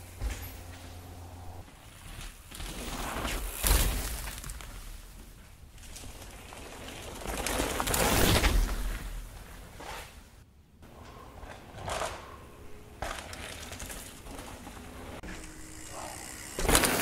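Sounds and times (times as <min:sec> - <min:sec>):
mountain bike rushing past: 0:05.8 - 0:09.0, 0:13.0 - 0:17.0.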